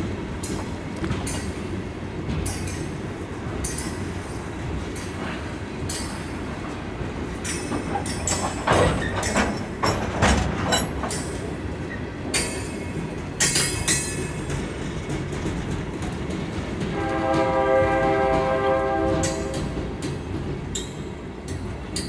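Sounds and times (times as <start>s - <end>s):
train wheels clicking over rail joints: 0.0s - 22.0s
knocks and clanks: 7.4s - 11.5s
train horn chord: 16.9s - 19.8s.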